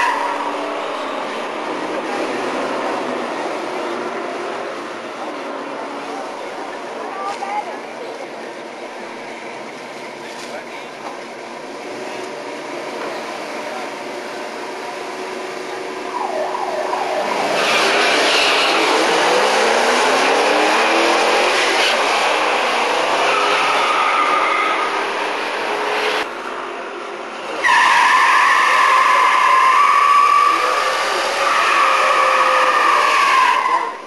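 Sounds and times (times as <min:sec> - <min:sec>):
drag car engines accelerating: 0:07.8 - 0:34.0
tyres squealing in burnout: 0:17.0 - 0:25.0, 0:27.5 - 0:34.0.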